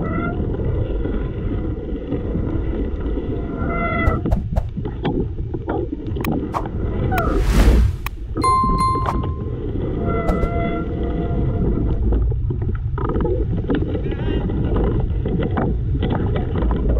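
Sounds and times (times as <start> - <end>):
loud rush of noise: 7.2 - 8.4
wind and tyres rumbling: 10.3 - 16.9.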